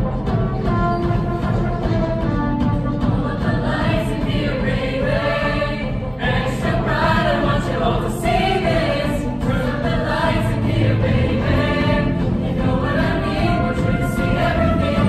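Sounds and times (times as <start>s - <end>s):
mixed choir singing: 3.0s - 15.0s.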